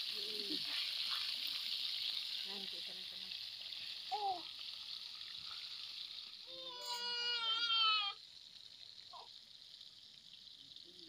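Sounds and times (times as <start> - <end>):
fish sizzling in hot oil: 0.0 - 11.0.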